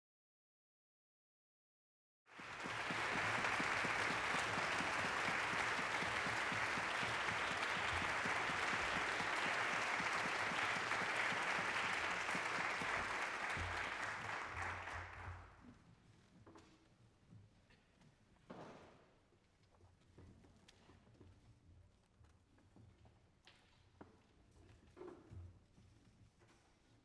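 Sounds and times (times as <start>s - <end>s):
audience applauding: 2.3s - 15.5s.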